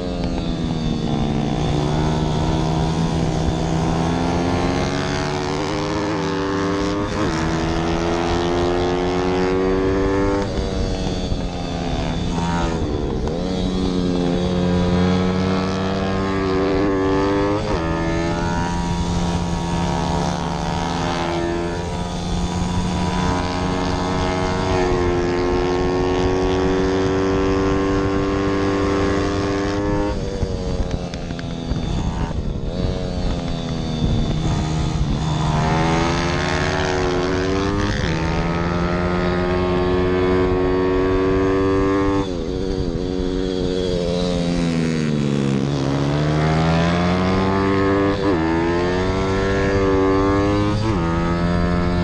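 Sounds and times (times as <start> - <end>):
motorbike engine revving: 0.0 - 52.0.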